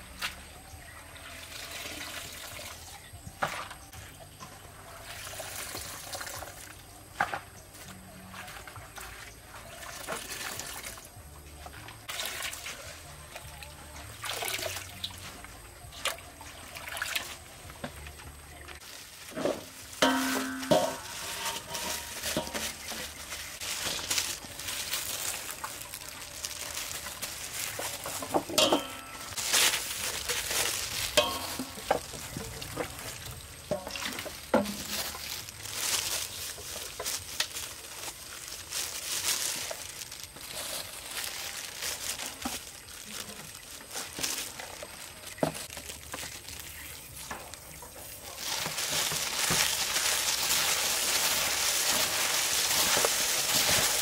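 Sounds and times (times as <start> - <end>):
wet rustling and squishing: 18.7 - 54.0.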